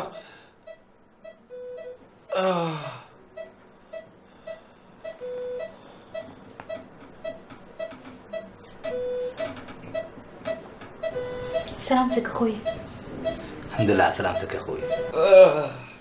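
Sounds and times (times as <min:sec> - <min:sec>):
patient monitor short beeps: 0:00.0 - 0:02.0, 0:03.4 - 0:15.2
longer lower monitor beep: 0:00.7 - 0:02.0, 0:03.4 - 0:09.4, 0:10.0 - 0:15.2
man moaning: 0:02.3 - 0:03.1, 0:15.1 - 0:16.0.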